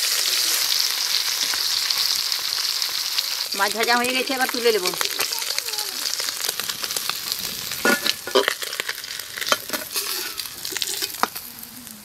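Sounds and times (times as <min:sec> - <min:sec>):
fish sizzling in hot oil: 0:00.0 - 0:12.0
metal spatula scraping pan: 0:07.8 - 0:08.8, 0:09.4 - 0:11.3.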